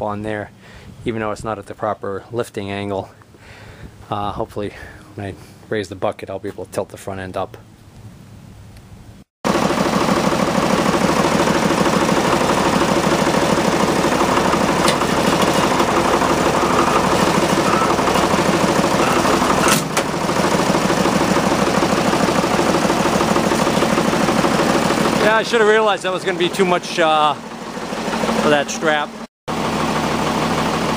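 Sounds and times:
tractor engine running: 9.5 - 30.9.

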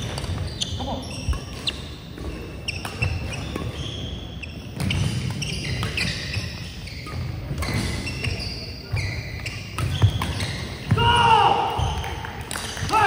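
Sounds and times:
sneaker squeaks: 0.0 - 11.0
rackets striking shuttlecock: 1.2 - 3.8, 9.0 - 11.0.

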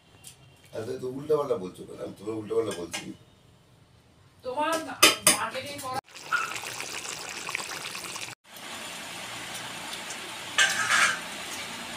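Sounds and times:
gravy bubbling in a pan: 6.0 - 11.9.

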